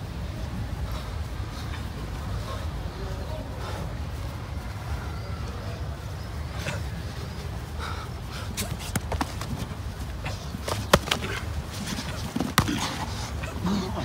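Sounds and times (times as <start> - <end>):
glove strikes and bodies colliding: 8.5 - 13.2.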